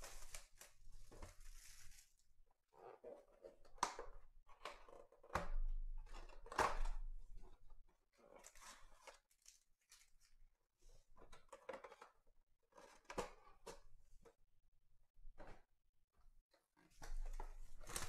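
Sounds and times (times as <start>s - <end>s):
cardboard tearing and rustling: 17.7s - 18.0s.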